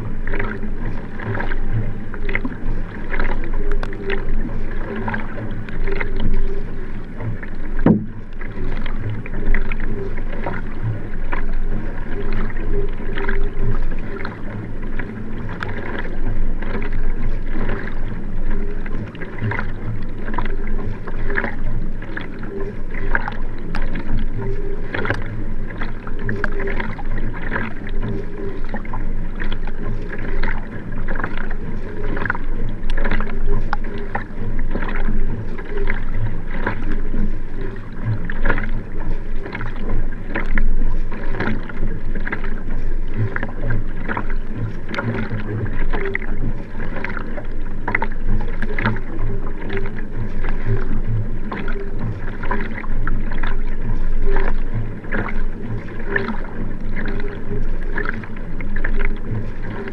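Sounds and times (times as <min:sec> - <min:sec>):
paddle blades splashing: 0:00.0 - 0:59.9
water rushing along hull: 0:00.0 - 0:59.9.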